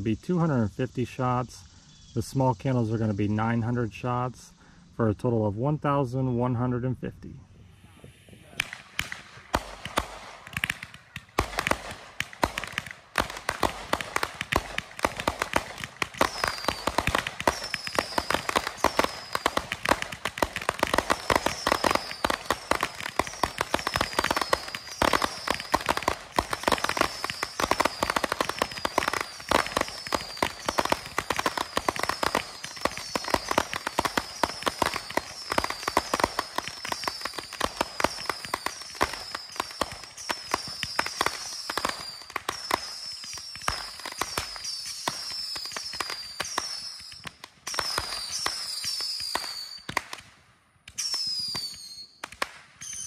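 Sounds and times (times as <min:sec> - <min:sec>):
roman candles popping: 0:08.6 - 0:50.3
whistles falling in pitch: 0:16.2 - 0:19.6, 0:21.4 - 0:25.9, 0:26.8 - 0:49.9, 0:51.0 - 0:52.2.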